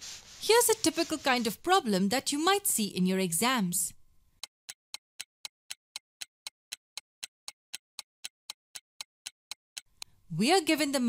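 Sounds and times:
clock ticking: 4.4s - 10.1s.

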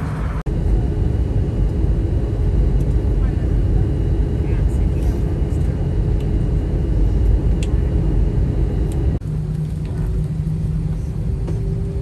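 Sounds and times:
moving vehicle rumble: 0.0s - 12.0s
steady low hum: 0.0s - 12.0s.

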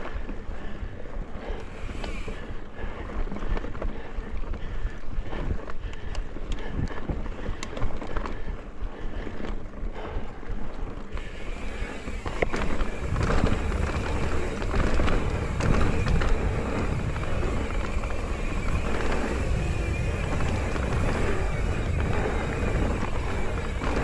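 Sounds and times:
bike clicks and rattles: 0.0s - 24.0s
bike tyres rolling on dirt: 0.0s - 24.0s
wind noise on microphone: 11.1s - 24.0s.

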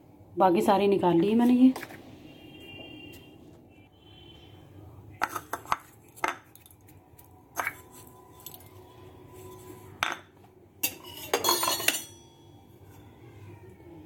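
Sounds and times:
metal spoon clinking on utensils: 10.0s - 12.6s
utensils clattering: 10.8s - 12.4s.

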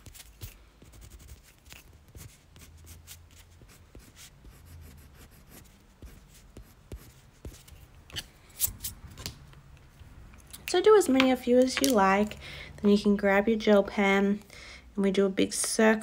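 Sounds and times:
pencil scratching on paper: 0.0s - 8.2s.

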